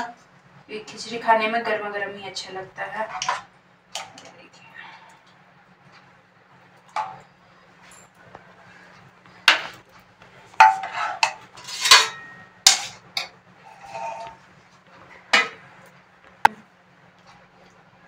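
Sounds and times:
metal ladle clinking and scraping: 0:10.6 - 0:14.4.

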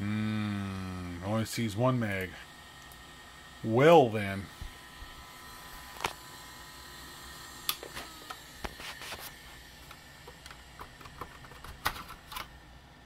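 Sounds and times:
faint electrical whine: 0:00.0 - 0:13.0
hands handling computer hardware: 0:08.6 - 0:12.5.

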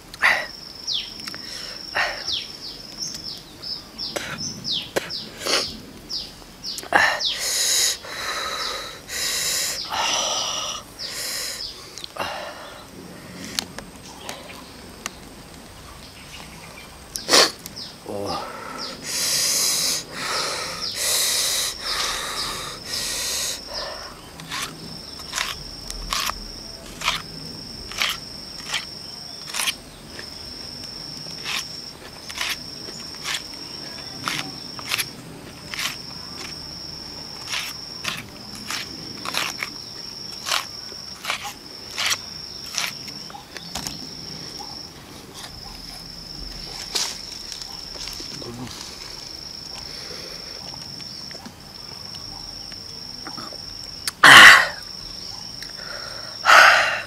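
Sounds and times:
insect buzzing: 0:00.0 - 0:57.0
man breathing out hissing breaths: 0:06.9 - 0:13.6, 0:18.2 - 0:24.2, 0:55.7 - 0:57.0
crunchy chewing of onion: 0:20.0 - 0:44.3.

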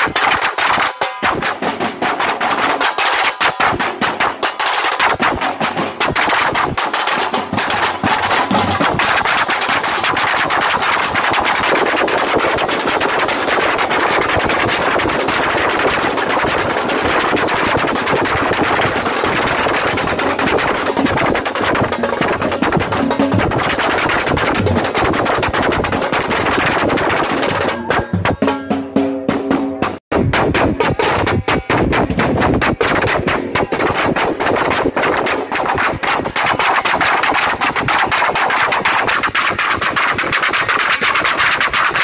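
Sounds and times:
side drums playing fast rhythm: 0:00.0 - 0:42.0.

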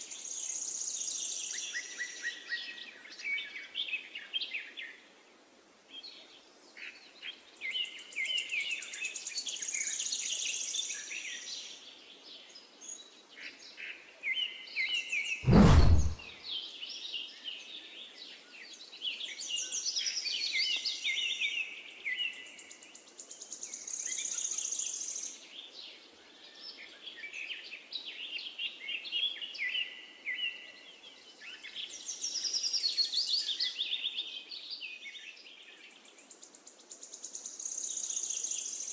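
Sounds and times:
short whoosh: 0:15.4 - 0:16.3.

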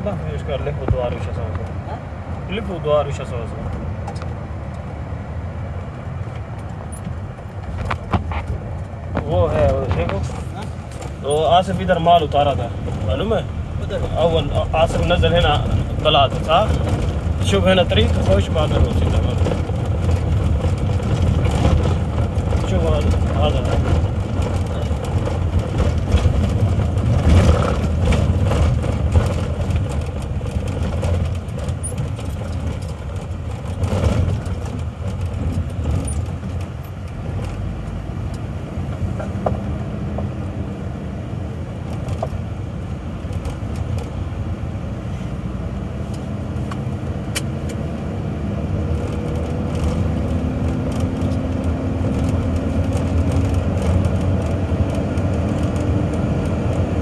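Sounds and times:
engine and tyre rumble: 0:00.0 - 0:57.0
rattles and knocks: 0:06.2 - 0:38.0, 0:48.8 - 0:57.0.

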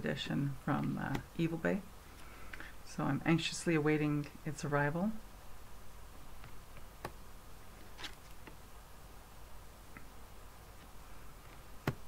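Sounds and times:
low room hum: 0:00.0 - 0:12.0
cards being handled: 0:07.8 - 0:08.6.

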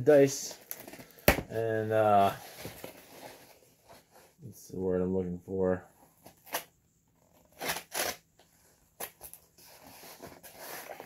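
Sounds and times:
cardboard flaps rustling: 0:00.6 - 0:04.4
packing tape ripping: 0:06.3 - 0:06.7, 0:07.4 - 0:08.3.

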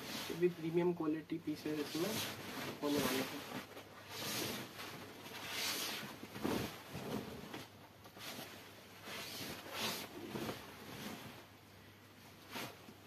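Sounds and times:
silk fabric rustling: 0:00.0 - 0:13.0.

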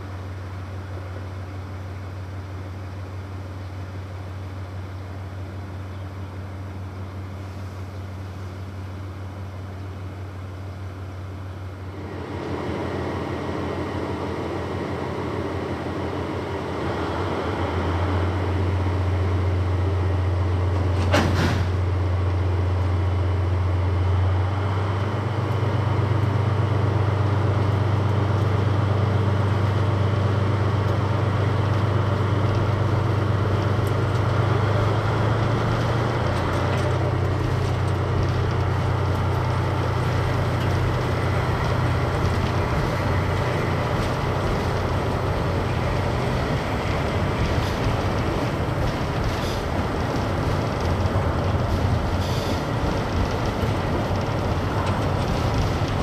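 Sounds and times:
diesel train engine running: 0:00.0 - 0:56.0.

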